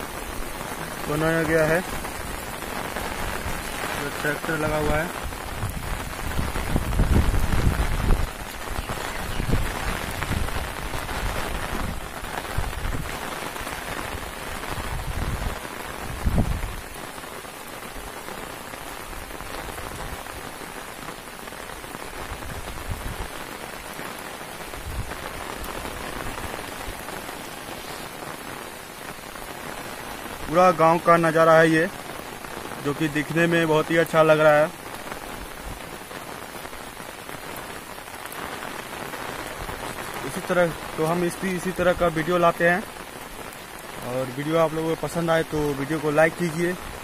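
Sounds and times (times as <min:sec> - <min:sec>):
wind gusts on microphone: 0:00.0 - 0:17.2, 0:17.9 - 0:30.5
rain hissing: 0:00.0 - 0:47.0.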